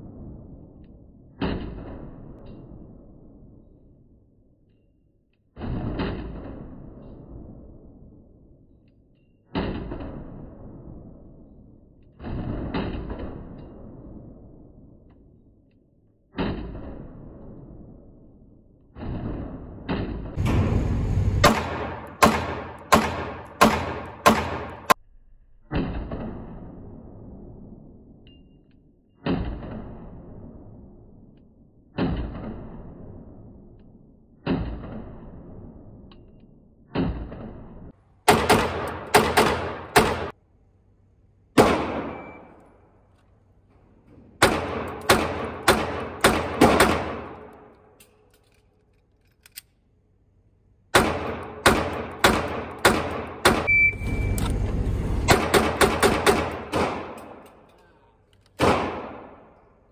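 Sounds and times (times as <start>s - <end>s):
pistol shots ringing indoors: 21.4s - 25.0s, 36.8s - 40.4s, 41.5s - 43.1s, 44.4s - 53.9s, 55.3s - 59.9s.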